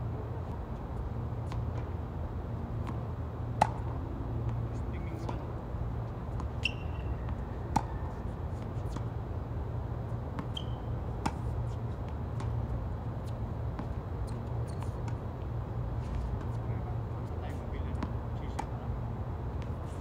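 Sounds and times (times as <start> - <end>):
tennis ball bouncing on hard court: 2.8 - 3.9, 6.3 - 9.2, 10.1 - 15.2, 17.8 - 18.8
tennis ball struck by rackets: 3.6 - 3.9, 6.4 - 9.1, 10.3 - 12.6.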